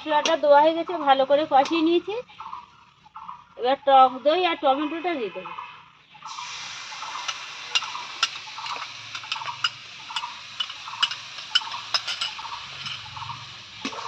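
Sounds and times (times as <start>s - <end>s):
sharp ticks and pops: 1.6s - 3.4s, 6.3s - 14.0s
spices sizzling in a pan: 6.2s - 14.0s
liquid pouring into pan: 6.3s - 13.3s.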